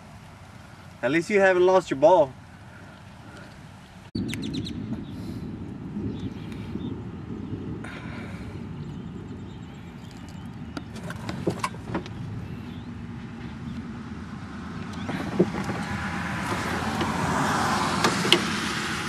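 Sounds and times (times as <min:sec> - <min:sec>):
golf cart rumbling: 0:00.0 - 0:19.0
rattles and knocks: 0:10.8 - 0:12.2, 0:15.1 - 0:18.7.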